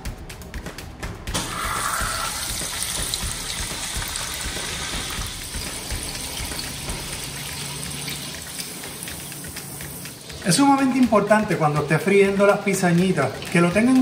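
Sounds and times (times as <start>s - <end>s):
batter sizzling in hot oil: 1.4s - 11.6s
frying hiss and crackle: 1.4s - 11.6s.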